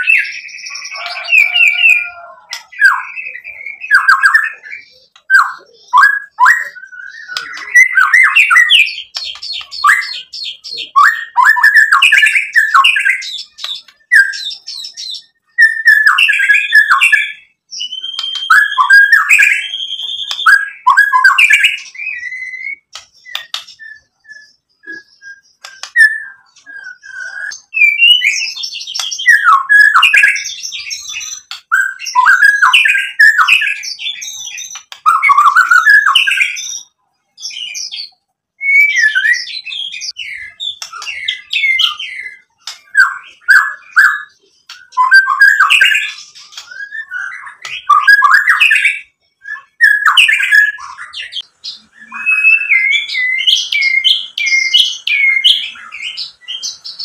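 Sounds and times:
songbird whistling and chattering: 0:00.0 - 0:57.0
sharp bird clicks: 0:08.6 - 0:09.9, 0:22.9 - 0:23.8, 0:25.6 - 0:26.0, 0:28.9 - 0:29.2, 0:40.7 - 0:41.3, 0:44.6 - 0:45.1.

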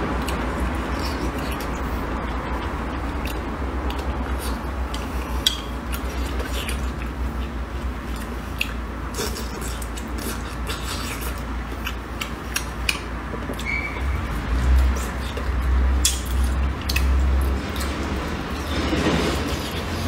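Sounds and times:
steady low hum: 0:00.0 - 0:20.0
chewing: 0:00.2 - 0:20.0
chopsticks clicking against a plate: 0:14.8 - 0:17.9.

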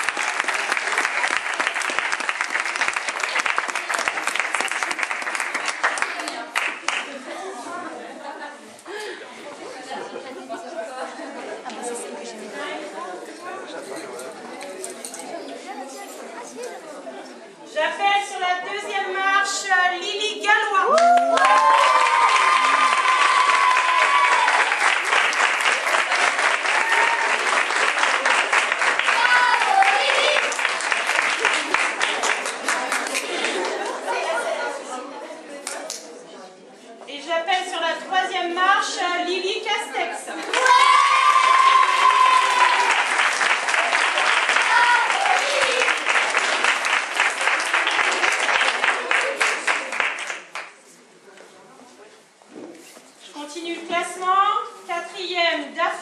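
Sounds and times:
audience applauding: 0:00.0 - 0:07.2, 0:20.9 - 0:34.2, 0:40.5 - 0:50.8.

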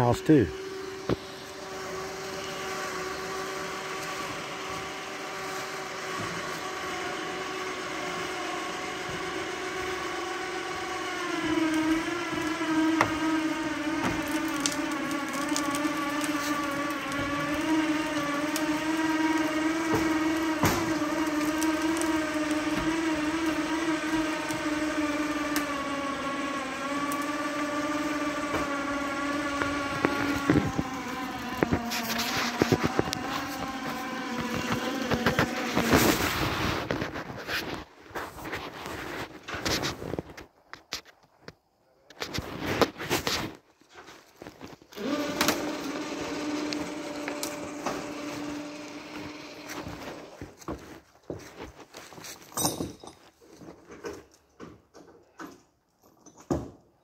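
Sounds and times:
motor running steadily: 0:00.0 - 0:37.2, 0:44.9 - 0:50.8.

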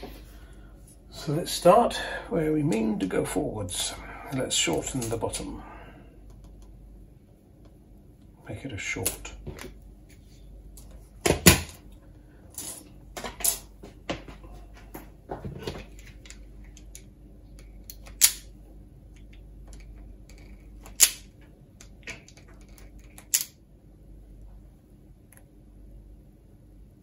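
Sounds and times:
wire stripper snapping: 0:17.8 - 0:18.5, 0:20.8 - 0:23.5.

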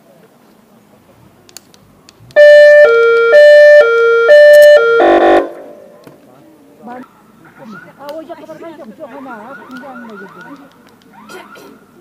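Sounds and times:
two-tone hi-lo siren: 0:02.4 - 0:05.8, 0:09.4 - 0:11.8.

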